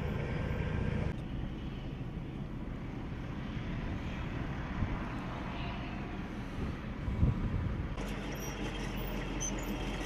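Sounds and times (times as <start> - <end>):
wind noise on microphone: 3.9 - 8.0.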